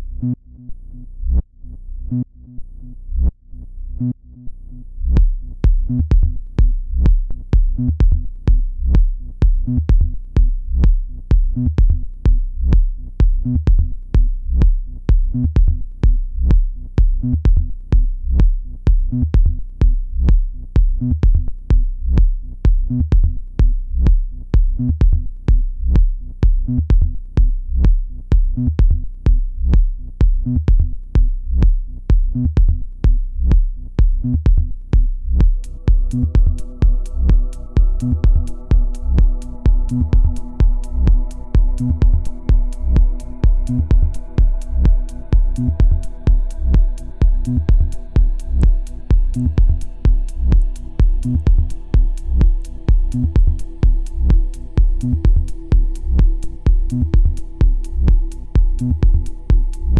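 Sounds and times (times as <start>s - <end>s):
kick drum beat: 5.0s - 59.9s
electronic dance track: 35.4s - 59.9s.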